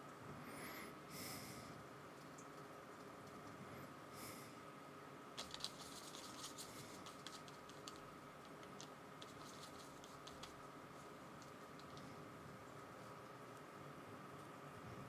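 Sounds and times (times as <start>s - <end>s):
quiet room hum: 0.0s - 15.0s
soft breath: 0.3s - 1.8s, 3.6s - 4.7s
paintbrush clicking on palette: 5.4s - 10.6s.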